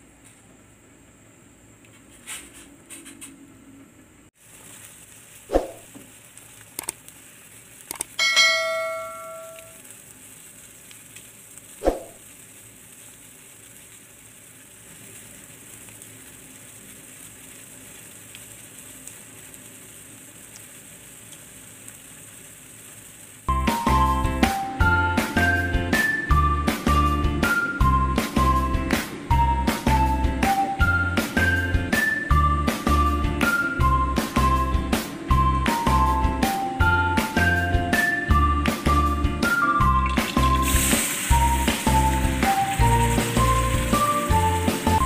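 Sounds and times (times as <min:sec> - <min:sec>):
broth bubbling: 0:11.8 - 0:12.2.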